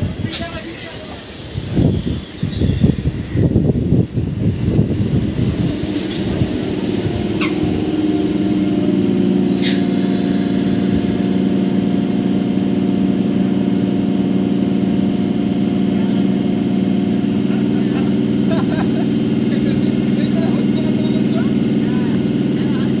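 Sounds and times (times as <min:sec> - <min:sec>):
voices: 0:00.0 - 0:02.4, 0:15.8 - 0:23.0
train electrical hum: 0:00.0 - 0:23.0
short sharp hiss: 0:09.6 - 0:11.0.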